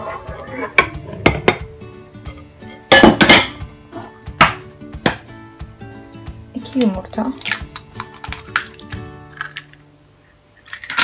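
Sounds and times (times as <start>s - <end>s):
metal bowl clanking: 0.0s - 3.7s
background music: 0.0s - 11.0s.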